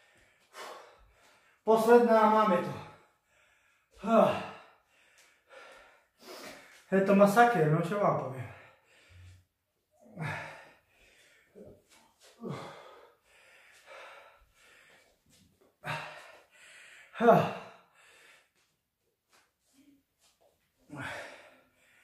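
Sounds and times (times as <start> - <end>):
man gasping for breath: 2.8 - 6.9, 8.4 - 18.7, 20.8 - 22.0.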